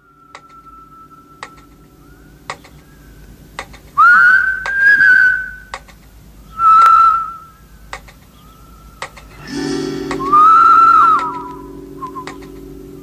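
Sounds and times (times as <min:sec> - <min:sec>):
whistle-like tones: 0:00.0 - 0:03.1, 0:04.0 - 0:05.7, 0:06.5 - 0:07.6, 0:09.4 - 0:12.6
soft ticks: 0:02.5 - 0:02.8, 0:07.9 - 0:08.3.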